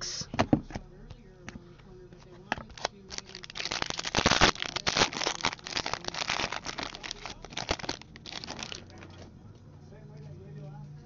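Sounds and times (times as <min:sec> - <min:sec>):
wrapper tearing open: 0:02.7 - 0:09.0
foil wrapper crinkling: 0:02.7 - 0:09.1.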